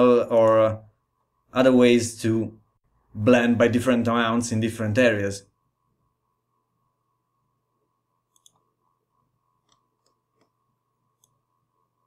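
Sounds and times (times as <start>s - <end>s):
faint steady hum: 0.0s - 12.0s
computer mouse clicks: 8.3s - 8.7s, 9.6s - 10.6s, 11.2s - 11.4s.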